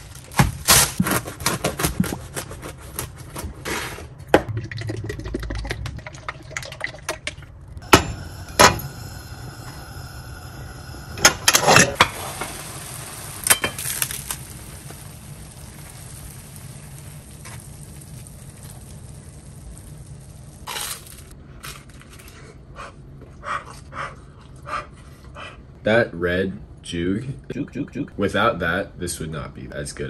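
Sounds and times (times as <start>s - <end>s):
toast sizzling in a pan: 7.8s - 21.4s
pan and utensils clanking: 11.2s - 12.7s.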